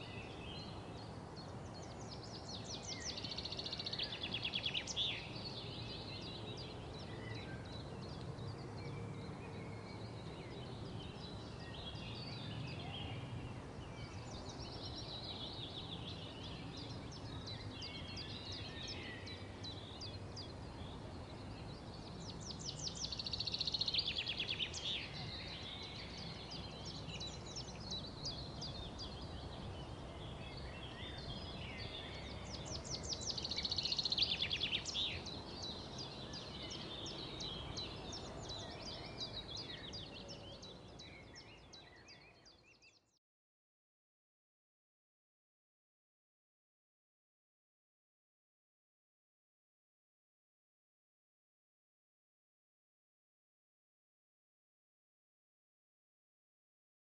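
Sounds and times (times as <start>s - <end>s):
birds singing: 0.0s - 43.2s.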